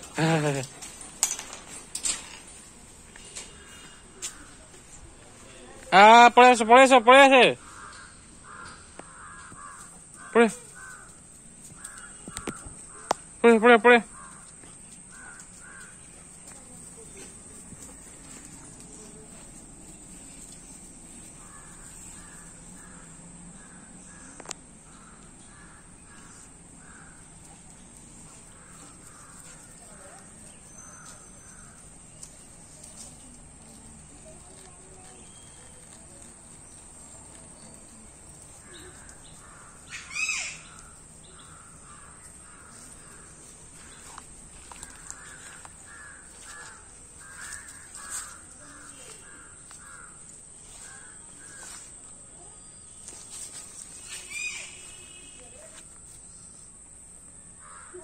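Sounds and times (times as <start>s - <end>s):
crows cawing: 3.4s - 4.7s, 7.6s - 13.4s, 14.0s - 16.2s, 21.3s - 32.8s, 38.5s - 51.9s, 57.6s - 58.0s.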